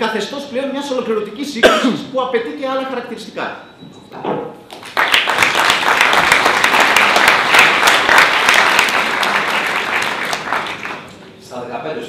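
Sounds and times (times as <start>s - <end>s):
audience applauding: 4.7s - 11.2s.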